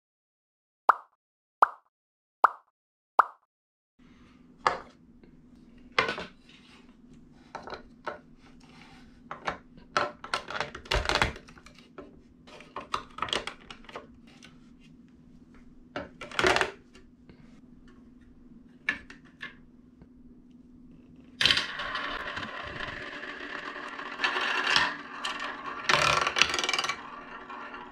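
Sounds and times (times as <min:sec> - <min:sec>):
faint steady hum: 0:04.0 - 0:27.2
plastic track pieces clicking: 0:21.4 - 0:27.9.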